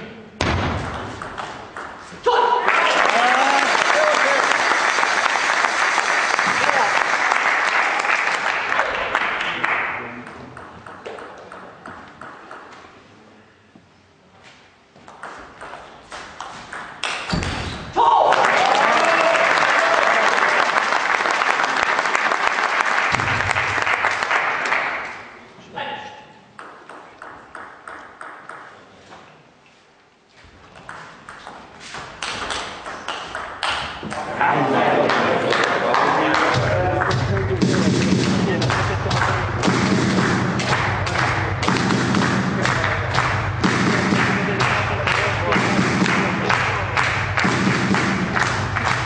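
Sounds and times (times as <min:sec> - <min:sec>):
table tennis ball bouncing: 0:00.4 - 0:02.0, 0:10.2 - 0:13.0, 0:15.0 - 0:17.8, 0:26.6 - 0:28.9, 0:30.7 - 0:34.2
applause: 0:02.6 - 0:10.2, 0:18.2 - 0:25.2, 0:35.0 - 0:49.0
table tennis rally clicks: 0:10.2 - 0:12.9, 0:30.8 - 0:34.2.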